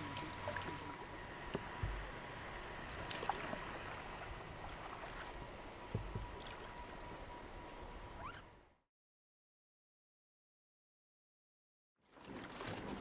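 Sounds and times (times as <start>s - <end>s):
river water running: 0.0s - 8.7s, 12.0s - 13.0s
low thumps: 1.5s - 2.1s, 5.9s - 6.4s.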